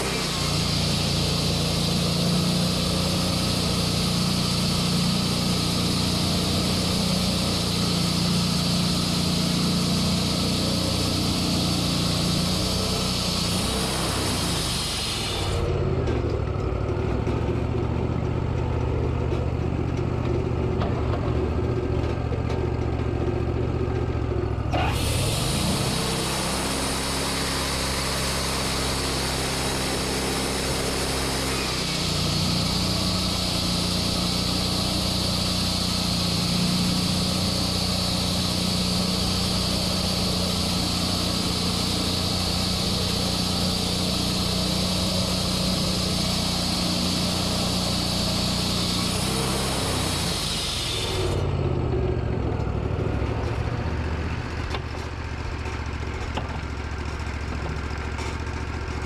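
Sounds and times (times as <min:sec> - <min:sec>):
hiss: 0:00.0 - 0:15.8, 0:24.7 - 0:51.5
saw blade high whine: 0:00.0 - 0:16.0, 0:24.7 - 0:51.6
band sawmill engine running: 0:00.0 - 0:59.0.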